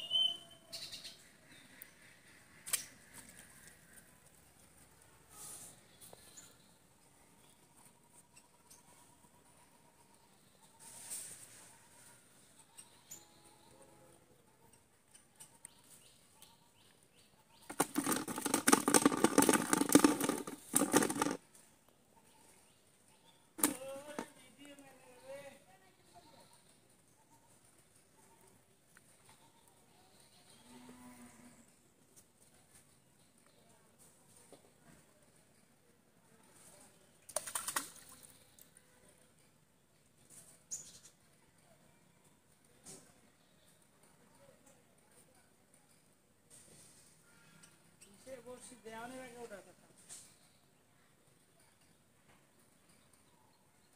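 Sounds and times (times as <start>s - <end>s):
rustling and crackling at microphone: 15.1s - 22.0s.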